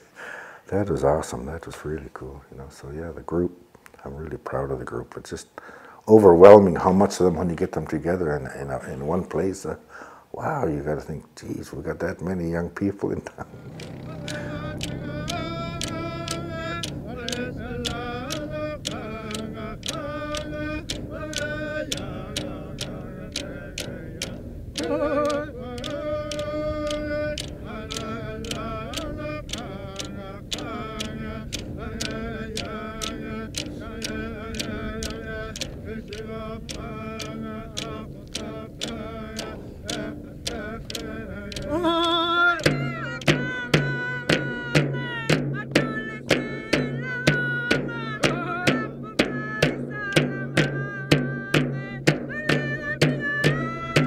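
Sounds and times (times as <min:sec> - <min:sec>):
frame drums beating: 0:13.5 - 0:54.0
group of people singing: 0:13.5 - 0:54.0.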